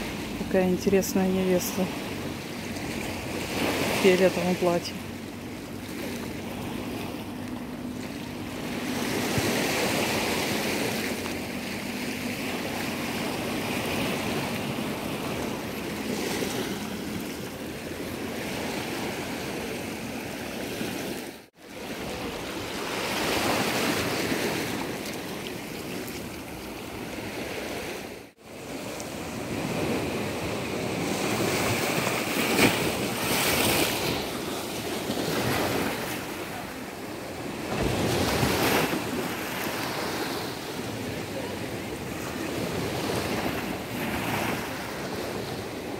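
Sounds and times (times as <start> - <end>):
waves washing over rocks: 0.0 - 45.9.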